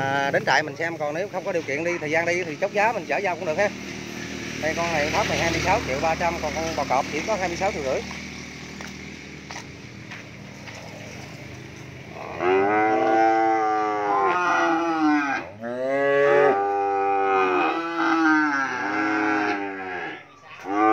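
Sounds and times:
cattle mooing: 0:12.1 - 0:20.9.

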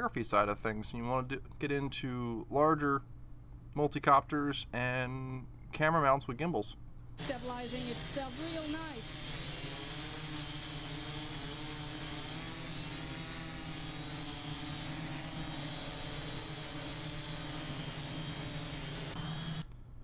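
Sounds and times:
multicopter propellers whirring: 0:07.2 - 0:10.6.

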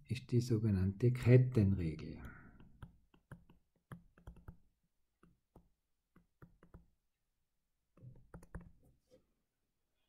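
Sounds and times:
stylus tapping on tablet screen: 0:02.2 - 0:07.0, 0:07.9 - 0:09.0.

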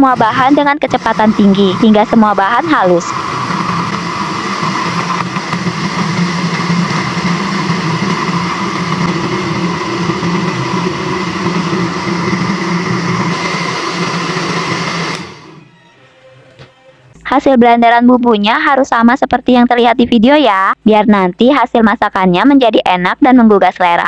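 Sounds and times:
blender motor whining: 0:00.0 - 0:15.7.

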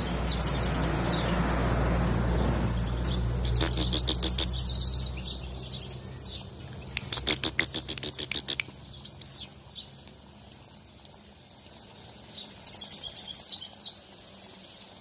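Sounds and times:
goldfinch twittering and trilling: 0:00.0 - 0:01.3, 0:02.8 - 0:09.9, 0:12.3 - 0:14.0.

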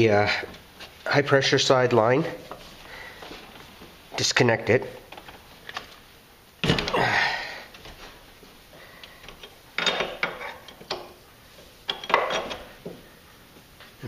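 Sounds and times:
wrench clicking and scraping: 0:11.9 - 0:12.7.

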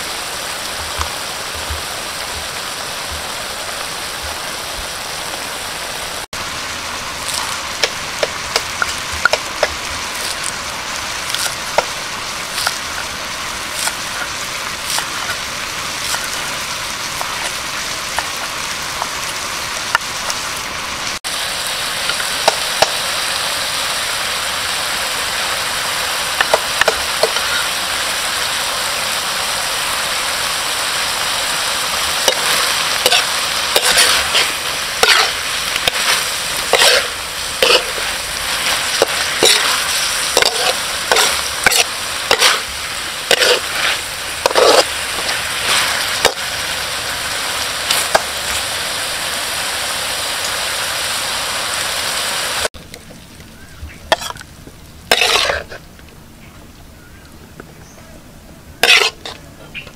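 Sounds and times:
offal sizzling in a pan: 0:00.0 - 0:52.7, 0:53.5 - 0:55.9, 0:58.8 - 0:59.9
utensil scraping a pan: 0:32.2 - 0:46.4, 0:54.1 - 0:54.4, 0:55.1 - 0:55.8, 0:58.8 - 0:59.5.

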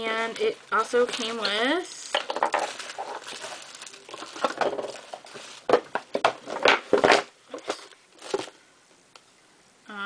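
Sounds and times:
packaging rustling and crinkling: 0:00.3 - 0:08.6
sharp crackles: 0:01.0 - 0:05.7.

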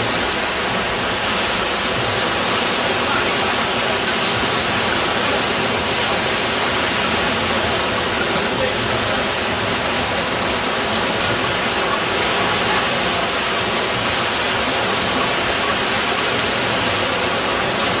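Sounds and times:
breaking churning whitewater: 0:00.0 - 0:18.0.

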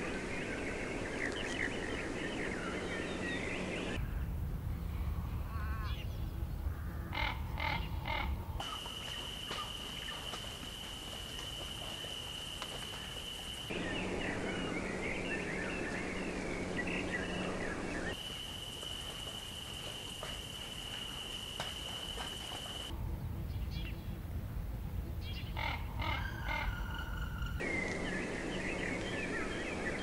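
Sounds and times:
low hum: 0:12.9 - 0:18.2, 0:21.0 - 0:30.0.

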